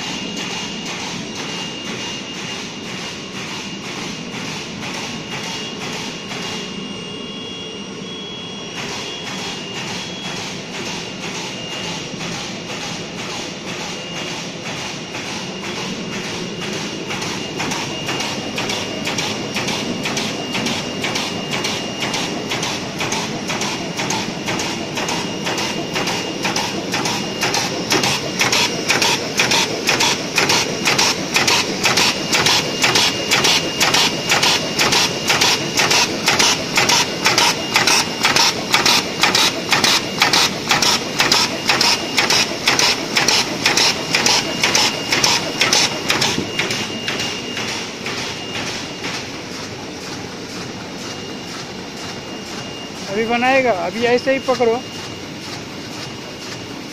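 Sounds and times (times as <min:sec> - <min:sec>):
bag-making machine clattering: 0:00.0 - 0:06.8, 0:08.7 - 0:56.9.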